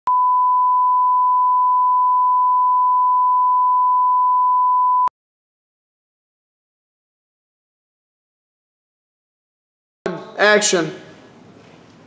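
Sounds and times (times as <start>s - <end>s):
steady sine test tone: 0.1s - 5.1s.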